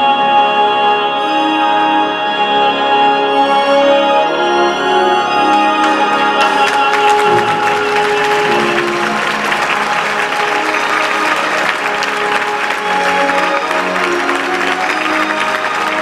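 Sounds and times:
orchestra sustained chords: 0.0s - 16.0s
audience applause: 5.4s - 16.0s.

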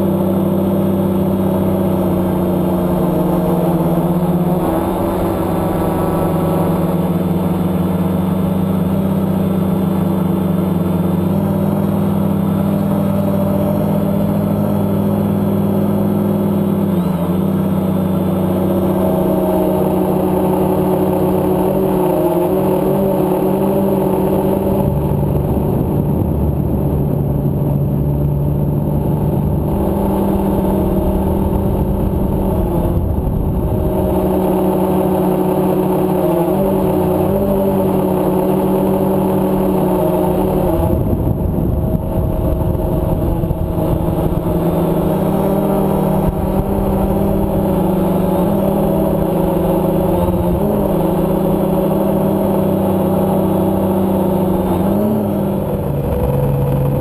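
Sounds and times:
drone motors buzzing: 1.1s - 8.0s, 29.0s - 57.0s.

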